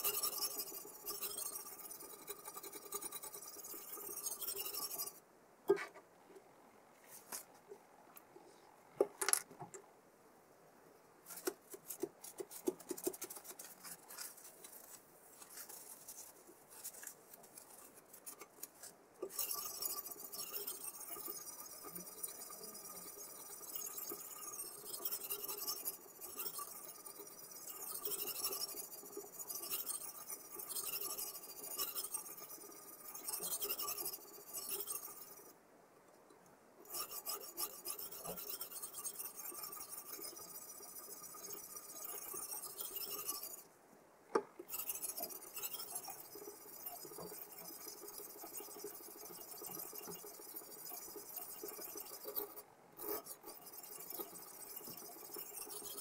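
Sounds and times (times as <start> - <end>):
sharpening stone rasping on knife: 0.0 - 5.2, 19.2 - 35.5, 36.9 - 43.6, 44.7 - 56.0.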